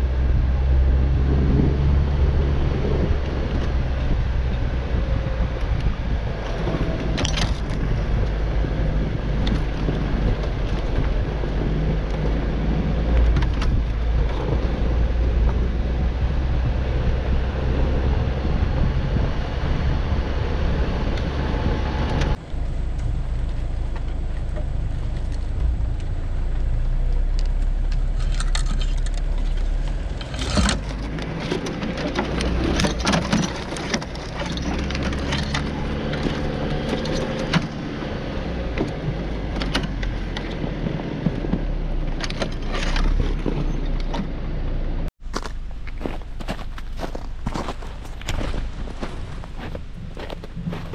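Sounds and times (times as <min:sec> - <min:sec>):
vehicle engine rumble: 0:00.0 - 0:50.9
sharp knocks and scrapes: 0:28.2 - 0:37.8.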